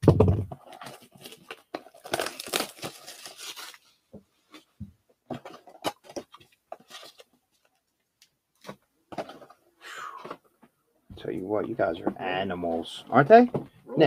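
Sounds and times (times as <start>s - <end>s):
card packs crinkling: 0.6s - 3.9s, 5.4s - 8.0s.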